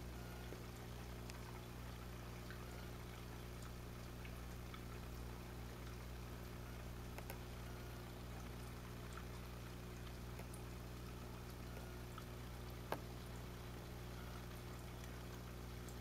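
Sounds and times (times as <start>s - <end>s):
aquarium equipment mains hum: 0.0s - 16.0s
small ticks: 0.2s - 1.7s, 6.8s - 9.4s, 10.0s - 13.3s.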